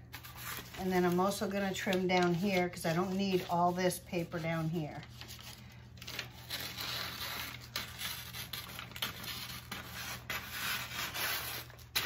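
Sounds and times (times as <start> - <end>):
paper crinkling and rustling: 0.0 - 12.0
scissors cutting paper: 6.0 - 12.0.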